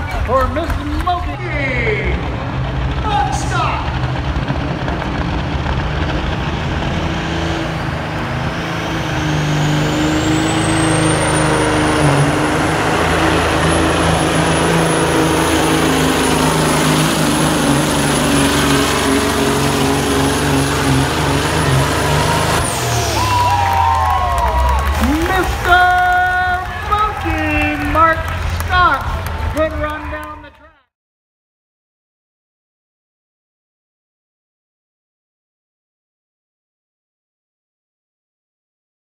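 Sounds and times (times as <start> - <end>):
diesel truck engine under load: 0.0 - 30.6.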